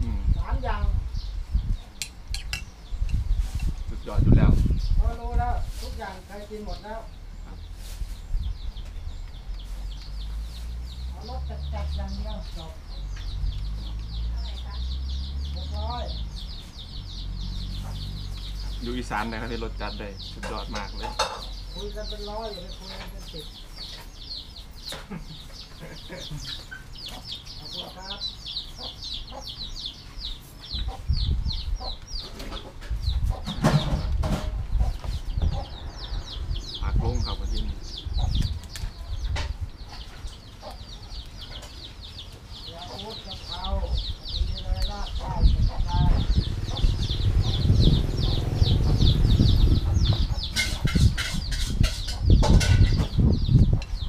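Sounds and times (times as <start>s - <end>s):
birds cheeping rapidly: 0.0s - 54.0s
chicks peeping: 0.0s - 54.0s
low rumble: 43.8s - 51.6s.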